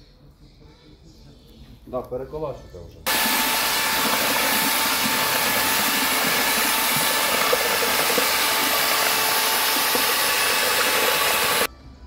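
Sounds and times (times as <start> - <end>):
paddle mixer churning grout: 3.1 - 11.7.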